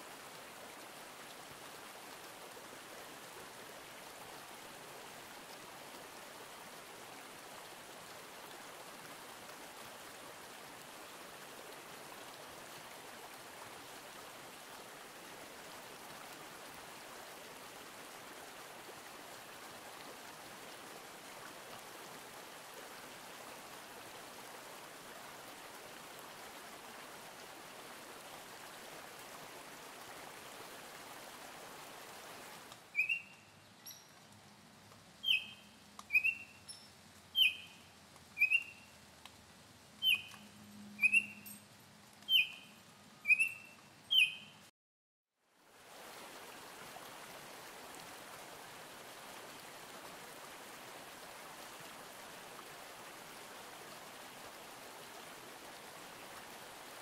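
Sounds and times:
stream rushing: 0:00.0 - 0:44.6, 0:45.6 - 0:57.0
bird whistled notes: 0:33.0 - 0:34.0, 0:35.2 - 0:36.6, 0:37.4 - 0:37.8, 0:38.4 - 0:38.8, 0:40.0 - 0:40.4, 0:41.0 - 0:41.6, 0:42.3 - 0:44.6.

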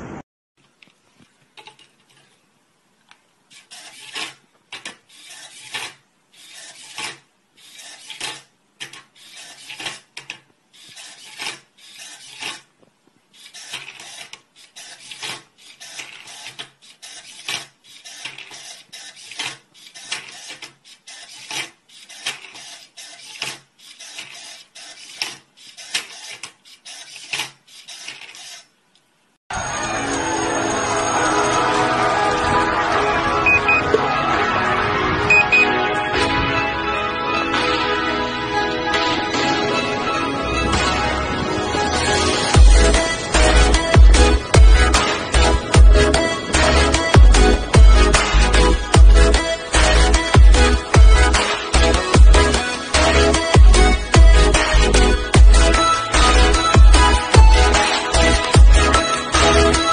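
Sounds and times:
robot turning cube layers: 0:03.5 - 0:12.7, 0:13.3 - 0:28.8.

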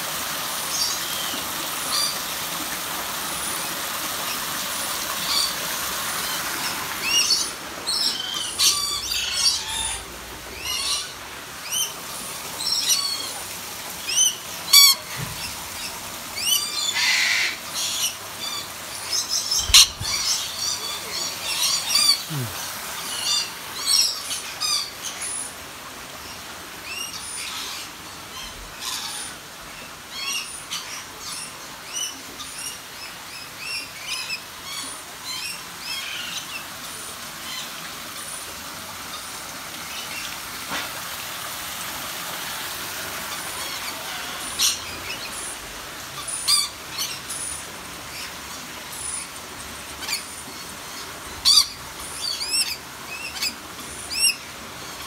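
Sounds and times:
birds chirping: 0:03.3 - 0:25.4.

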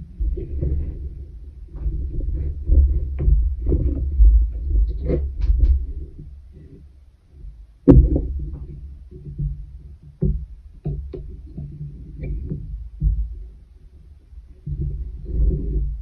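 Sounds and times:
yarn thumps and plucks on wooden frame: 0:07.9 - 0:13.4.

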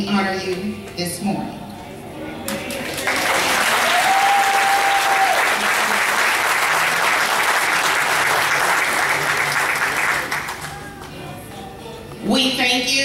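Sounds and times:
crowd clapping: 0:02.4 - 0:11.3.

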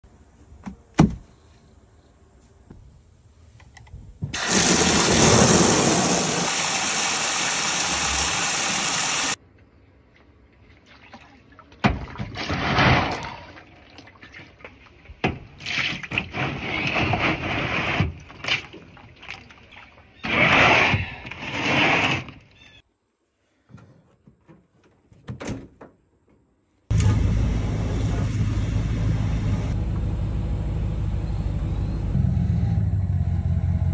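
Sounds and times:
water running hard: 0:04.4 - 0:09.4
truck driving rumble: 0:26.9 - 0:33.9.

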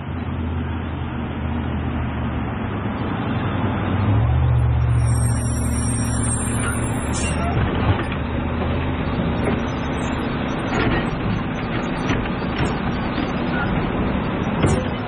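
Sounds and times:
garbage truck engine: 0:02.3 - 0:15.0
brakes squealing: 0:03.7 - 0:15.0.

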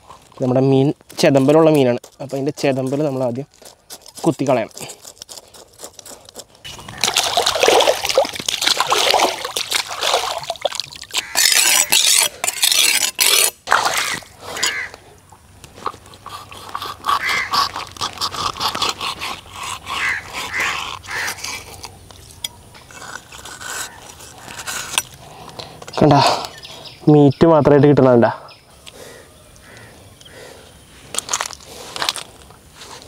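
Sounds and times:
water splashing and sloshing: 0:06.7 - 0:12.0, 0:13.6 - 0:19.8
knife scraping fish scales: 0:11.1 - 0:14.9, 0:15.9 - 0:25.3.

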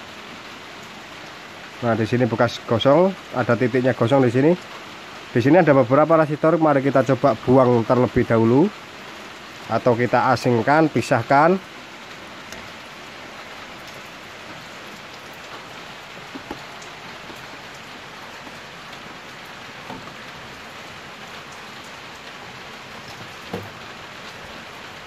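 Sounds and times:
steady rain falling: 0:00.0 - 0:25.0
light knocks: 0:16.2 - 0:18.6, 0:19.8 - 0:20.3, 0:23.1 - 0:23.8.

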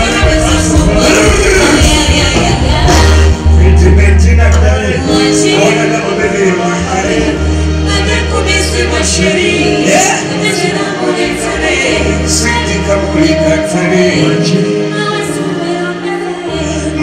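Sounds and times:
man singing into a microphone: 0:00.0 - 0:02.1, 0:03.4 - 0:07.4, 0:11.9 - 0:14.7
drums: 0:00.0 - 0:05.4
deep bass notes: 0:00.0 - 0:09.7
keyboard: 0:00.0 - 0:17.0.

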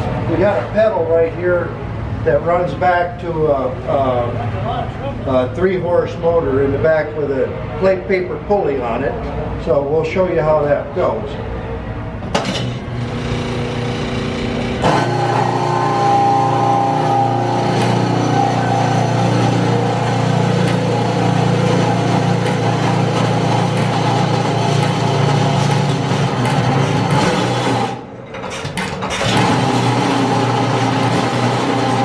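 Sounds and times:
small motor starting and running: 0:13.0 - 0:28.0, 0:29.2 - 0:32.0
stationary engine turning over: 0:13.0 - 0:28.0.

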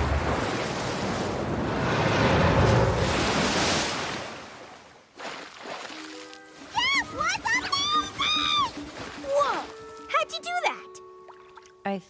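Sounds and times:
wave crashing: 0:00.0 - 0:05.0.

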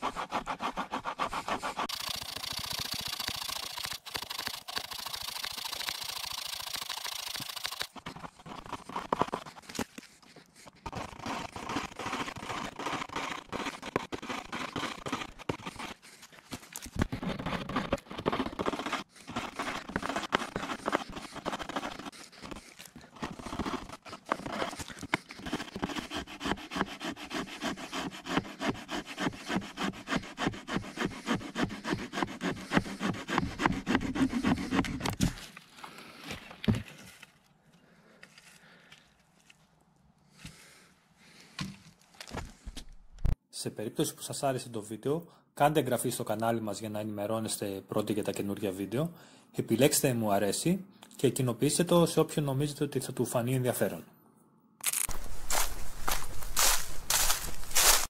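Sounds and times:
hand saw cutting a branch: 0:00.0 - 0:16.2, 0:17.4 - 0:35.3, 0:55.0 - 0:58.0.

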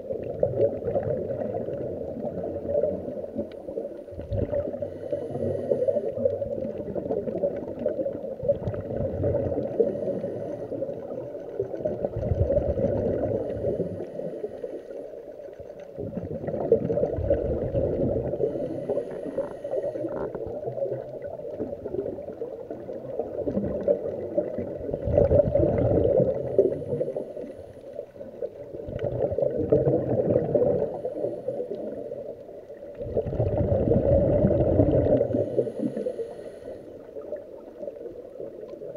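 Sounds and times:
regulator bubbles gurgling underwater: 0:00.0 - 0:38.9.

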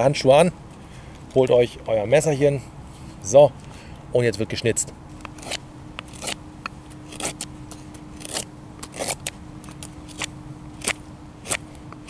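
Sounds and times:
knife carving wood: 0:05.2 - 0:06.4, 0:07.0 - 0:12.0.

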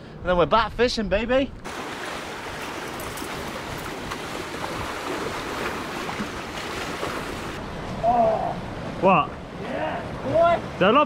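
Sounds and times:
sea waves washing against rocks: 0:01.6 - 0:07.6.

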